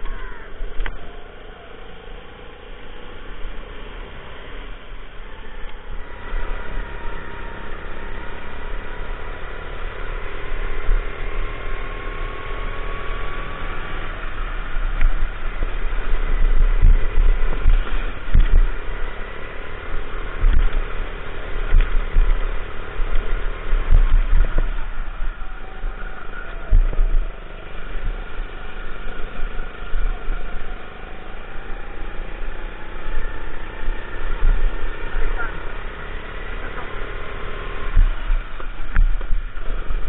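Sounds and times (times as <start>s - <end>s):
go-kart engine accelerating: 0.0s - 40.0s
wind buffeting microphone: 12.2s - 36.7s
low thumps: 14.4s - 19.2s, 20.0s - 30.8s.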